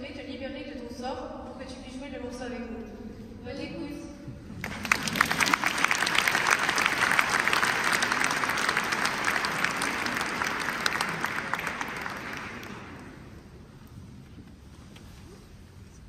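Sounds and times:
audience applauding: 4.6s - 13.4s.

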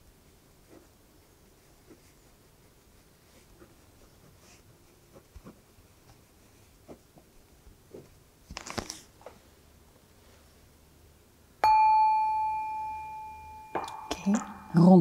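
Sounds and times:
paper rustling: 8.0s - 9.4s
singing bowl ringing: 11.6s - 15.0s.

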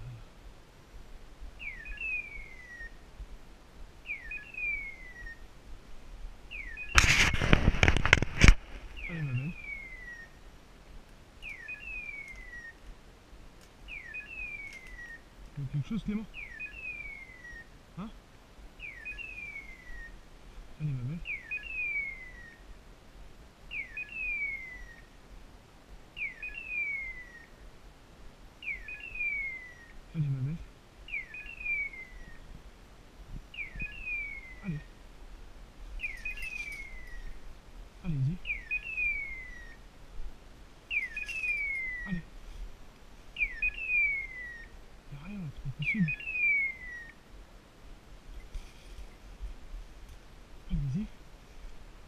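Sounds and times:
beeper collar falling chirp: 36.0s - 37.4s, 40.9s - 42.1s.

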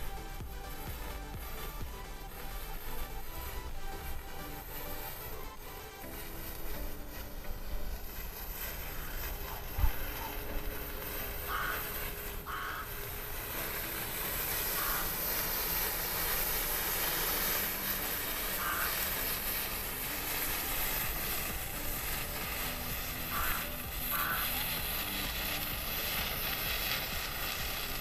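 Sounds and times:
matches burning with a hiss: 0.0s - 28.0s
short calls: 11.4s - 13.0s, 14.6s - 15.7s, 18.5s - 19.3s.

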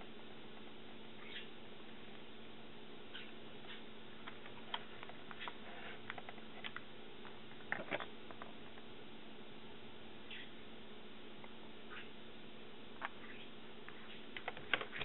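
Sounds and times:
faint steady hum: 0.0s - 15.0s
plastic tray clicking and crackling: 7.6s - 8.5s, 14.4s - 15.0s.

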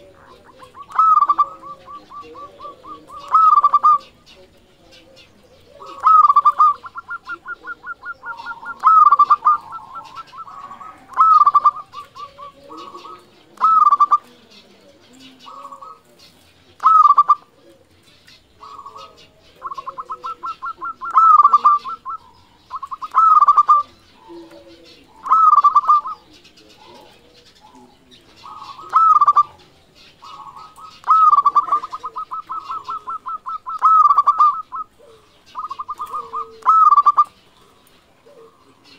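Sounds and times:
dove cooing: 0.0s - 38.9s.

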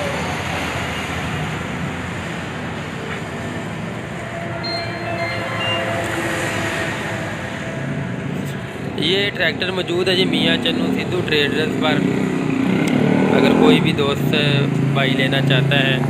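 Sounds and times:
vehicle engine hum: 0.0s - 16.0s
faint high thin tones: 4.5s - 7.1s.

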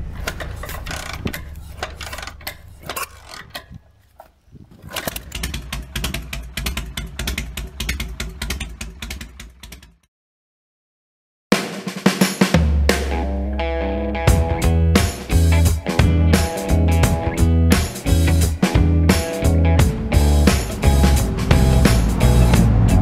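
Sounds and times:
mechanical clicks and rattles: 0.0s - 3.9s, 4.8s - 9.9s
low rumble: 19.9s - 23.0s.

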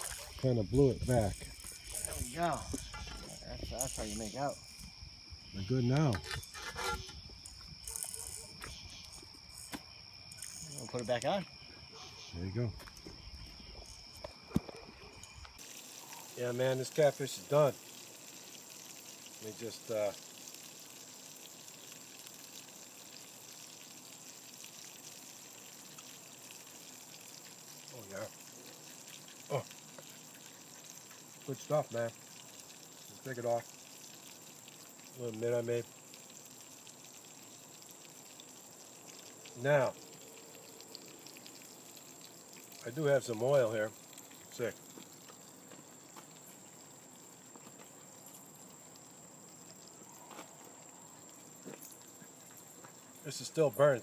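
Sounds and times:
outdoor background hiss: 0.0s - 54.0s
fish sizzling in oil: 15.5s - 51.6s.

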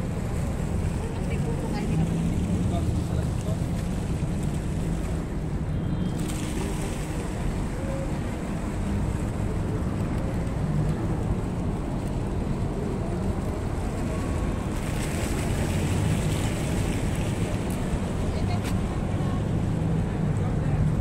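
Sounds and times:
road traffic rumble: 0.0s - 21.0s.

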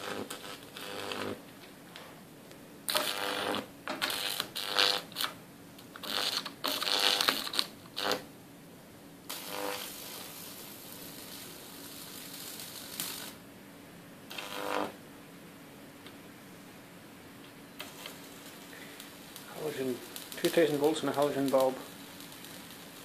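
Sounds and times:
electric arc crackling and buzzing: 0.0s - 2.1s, 2.8s - 8.3s, 9.2s - 13.5s, 14.3s - 15.0s, 17.4s - 23.0s.

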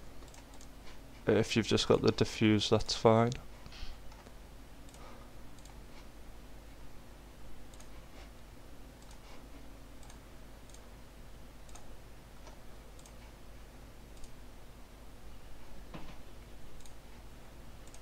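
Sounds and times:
low steady hum: 0.0s - 18.0s
computer mouse clicking: 0.2s - 0.7s, 4.9s - 5.8s, 7.7s - 7.9s, 9.0s - 9.3s, 10.0s - 10.9s, 11.6s - 13.4s, 14.2s - 14.4s, 16.8s - 17.0s.

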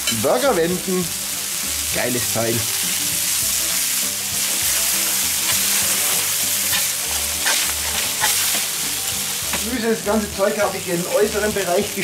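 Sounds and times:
meat patties sizzling on griddle: 0.0s - 12.0s.

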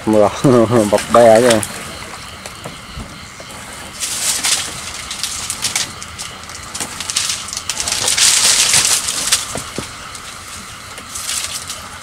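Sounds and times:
rustling and small knocks: 0.9s - 11.8s
fish thrashing on line: 3.8s - 11.8s.

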